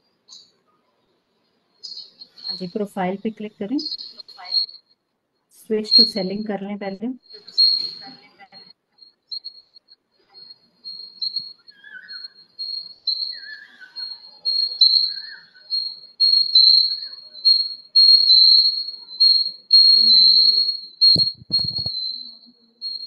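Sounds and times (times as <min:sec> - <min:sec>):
pulsing high-pitched whistle: 0:10.4 - 0:23.0.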